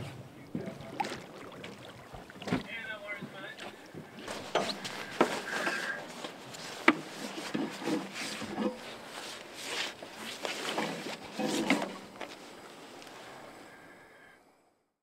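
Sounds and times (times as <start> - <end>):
hose rustling and scraping on metal: 4.2 - 13.2.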